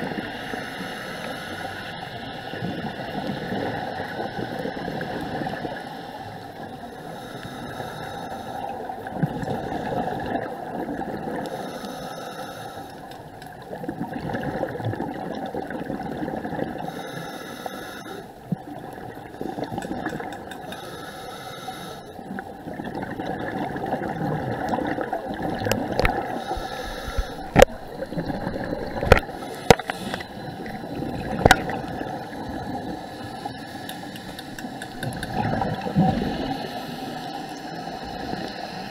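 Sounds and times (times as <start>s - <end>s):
scuba regulator breathing: 0.3s - 2.1s, 6.8s - 10.5s, 11.4s - 13.3s, 16.8s - 18.5s, 19.4s - 22.4s, 26.0s - 38.9s
bubbling exhalation: 22.8s - 32.9s, 34.1s - 36.7s
sharp clicks: 33.8s - 35.4s.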